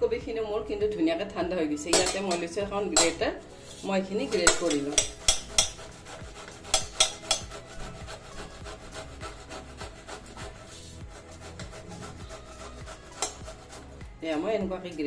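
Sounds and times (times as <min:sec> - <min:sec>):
grater rasping: 0:04.2 - 0:14.5.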